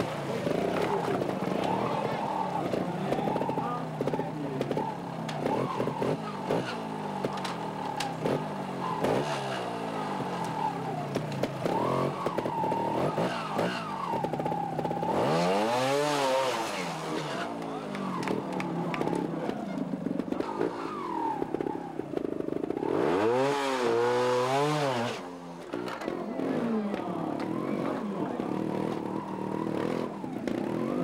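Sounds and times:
motorcycle engine revving: 0:00.0 - 0:31.0.

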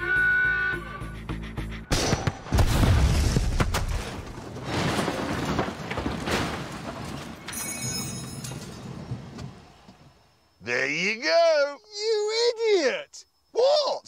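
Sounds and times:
explosive blasts: 0:01.9 - 0:07.0
debris clattering: 0:02.8 - 0:09.4.

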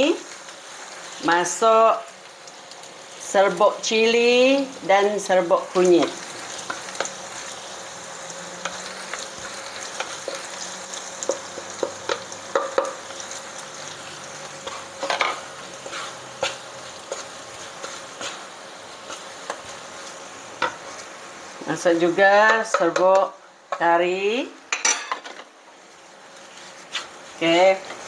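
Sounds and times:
oil sizzling: 0:00.0 - 0:28.0
wooden spatula scraping wok: 0:08.5 - 0:23.9, 0:25.1 - 0:28.0.

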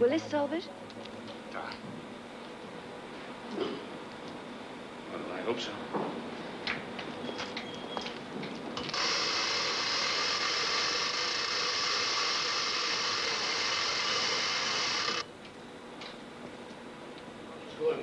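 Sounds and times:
chain hoist grinding: 0:08.9 - 0:15.2.

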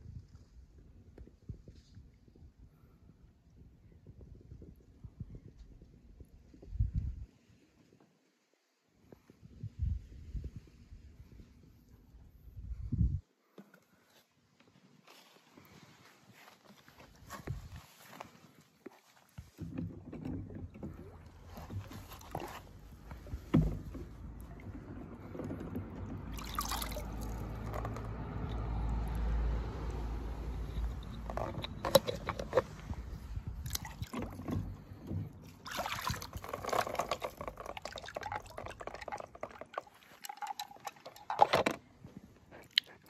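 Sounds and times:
water sloshing and dripping: 0:18.8 - 0:43.0.

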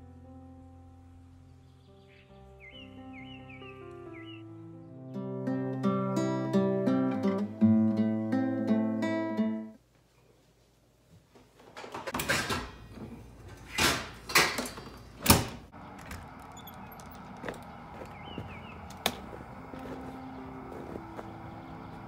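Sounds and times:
low outdoor hum: 0:12.4 - 0:22.0.

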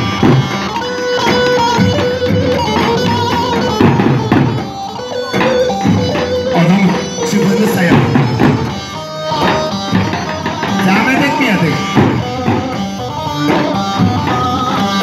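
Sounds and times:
sustained melody line: 0:00.0 - 0:15.0
large drums beaten with sticks: 0:01.2 - 0:04.8, 0:05.4 - 0:12.8.

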